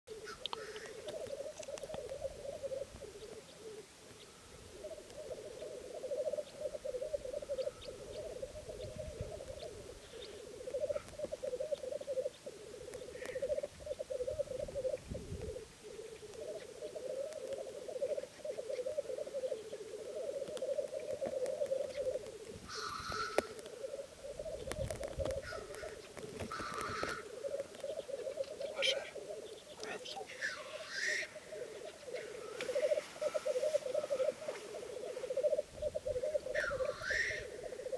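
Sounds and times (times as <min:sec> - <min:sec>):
grouse bubbling warble: 0:00.3 - 0:03.9, 0:04.7 - 0:37.9
harsh hissing bird calls: 0:25.4 - 0:37.9.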